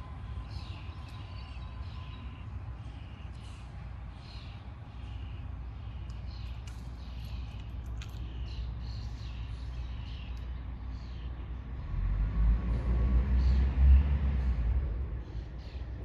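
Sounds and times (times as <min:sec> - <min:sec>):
small birds chirping: 0:00.1 - 0:12.0, 0:13.3 - 0:16.0
passing car rumble: 0:11.4 - 0:16.0.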